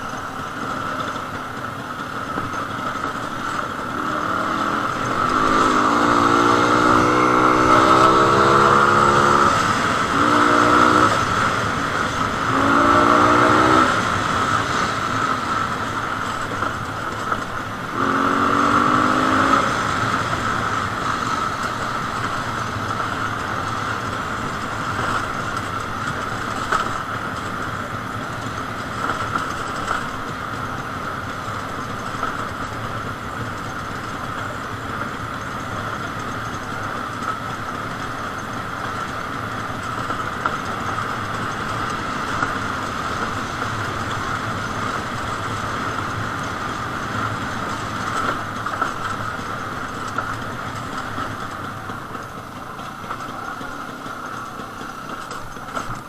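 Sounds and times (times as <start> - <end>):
two-stroke motorcycle engine revving: 0.6 - 27.0.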